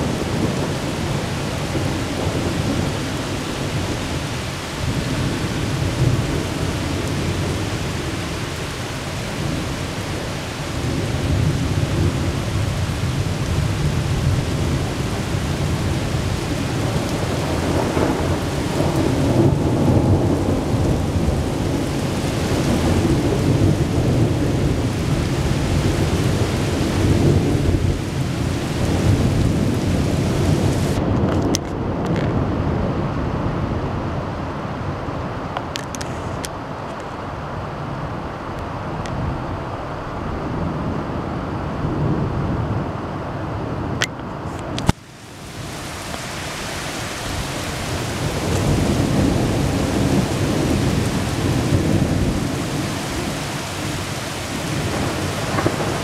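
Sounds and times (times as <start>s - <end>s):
rain hissing: 0.0s - 31.0s, 44.4s - 56.0s
thunder rumbling: 0.0s - 36.4s, 37.8s - 56.0s.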